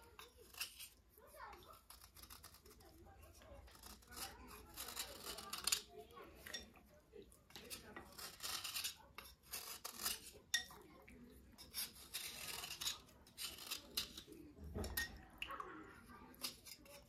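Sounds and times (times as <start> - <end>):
knife scraping slate pencil: 0.0 - 6.7, 7.5 - 10.8, 11.5 - 15.1, 16.0 - 17.0.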